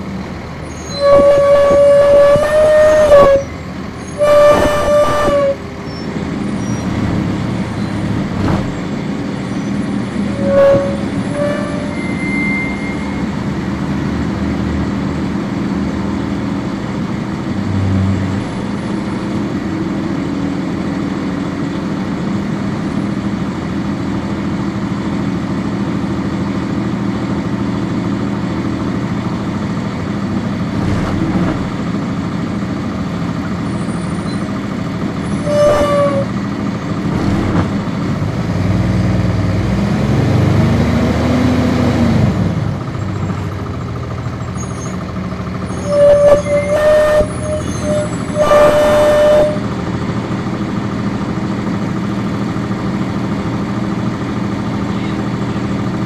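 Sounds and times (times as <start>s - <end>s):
bus diesel engine humming: 0.0s - 56.0s
loud pitched tone: 0.7s - 6.0s, 9.6s - 13.5s, 35.4s - 36.4s, 45.6s - 49.7s.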